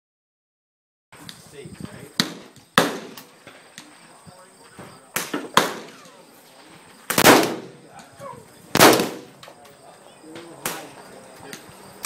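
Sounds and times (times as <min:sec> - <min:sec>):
gunshots with echo: 0:02.2 - 0:03.2, 0:07.1 - 0:07.8, 0:08.7 - 0:09.4.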